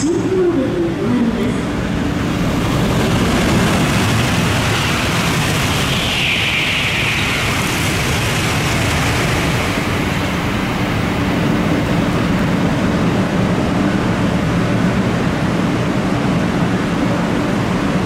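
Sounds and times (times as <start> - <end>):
low hum: 0.0 - 17.7
high-speed train rushing past: 0.0 - 18.0
heavy rain: 1.8 - 15.3
high hiss: 2.3 - 11.6.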